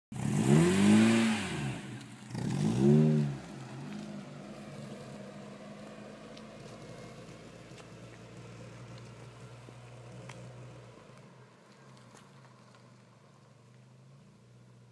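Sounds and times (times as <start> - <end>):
car engine revving: 0.1 - 11.1.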